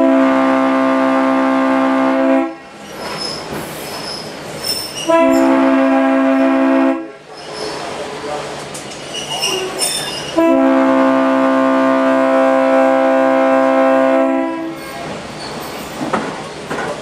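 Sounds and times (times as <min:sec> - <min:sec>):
locomotive air horn blast: 0:00.0 - 0:02.7, 0:05.0 - 0:07.2, 0:10.3 - 0:15.1
rail car rattle: 0:02.6 - 0:17.0.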